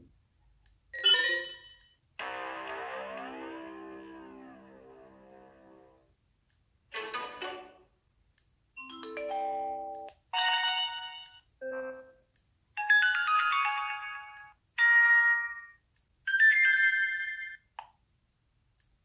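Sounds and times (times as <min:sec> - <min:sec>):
synthesized chimed ringtone: 0:01.0 - 0:02.0, 0:08.8 - 0:12.2, 0:12.8 - 0:17.6.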